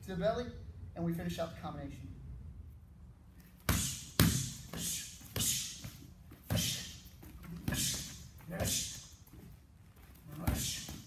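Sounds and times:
strikes hitting thai pads: 0:03.6 - 0:07.0.

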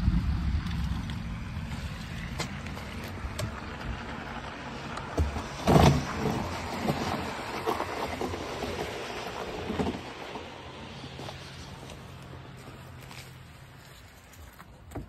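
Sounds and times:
bike tyres crunching on gravel: 0:00.1 - 0:15.0
bike bumping and jolting: 0:05.0 - 0:10.4.

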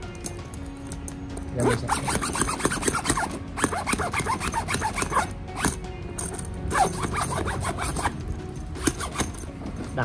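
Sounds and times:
zipper rasping open and closed: 0:01.6 - 0:05.8, 0:06.7 - 0:09.6.

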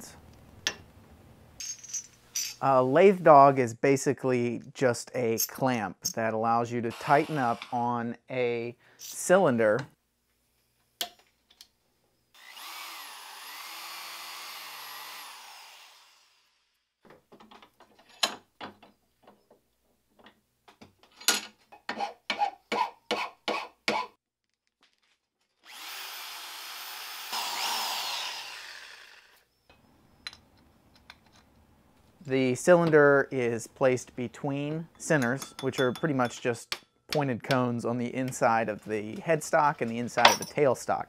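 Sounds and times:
power drill whining: 0:06.9 - 0:07.8, 0:12.4 - 0:16.8, 0:25.6 - 0:29.5.

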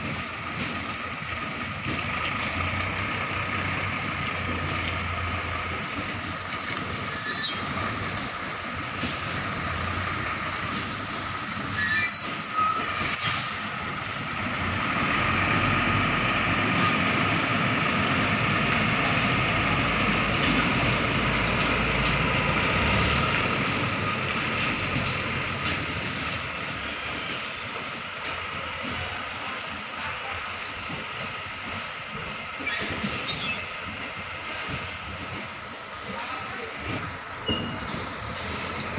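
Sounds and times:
truck diesel engine running: 0:00.0 - 0:11.8, 0:13.4 - 0:38.9
high-pitched brake squeal: 0:07.1 - 0:07.8, 0:11.6 - 0:13.6, 0:31.4 - 0:31.8, 0:32.6 - 0:33.8, 0:37.4 - 0:37.8.

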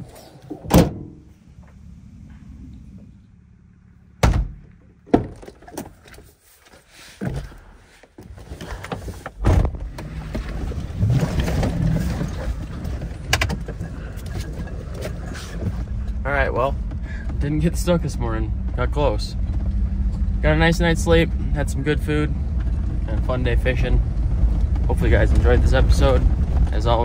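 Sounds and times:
truck engine low rumble: 0:00.0 - 0:06.7, 0:07.3 - 0:27.0
truck doors and hatches thunking shut: 0:00.5 - 0:01.3, 0:04.2 - 0:06.1, 0:08.9 - 0:10.1.

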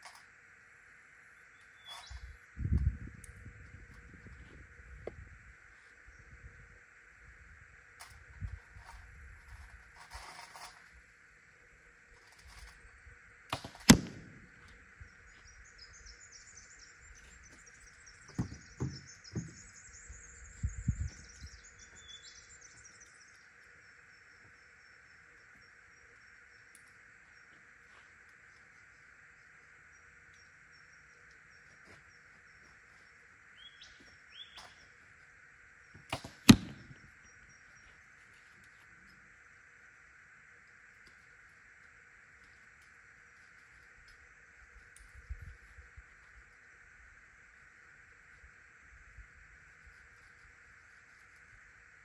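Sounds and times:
birds chirping: 0:01.0 - 0:07.0, 0:11.3 - 0:39.8
bow shot thump with low ring: 0:13.6 - 0:14.5, 0:18.3 - 0:19.6, 0:36.2 - 0:37.0.

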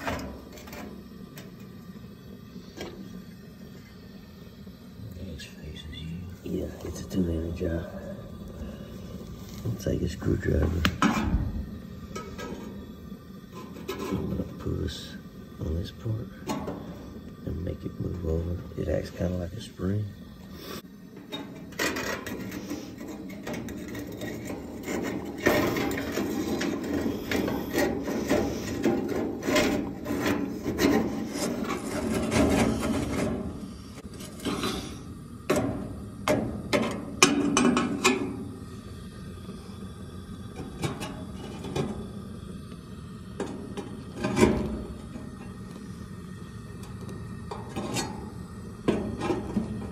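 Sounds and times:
ceramic grates scraping on metal: 0:21.8 - 0:33.4.

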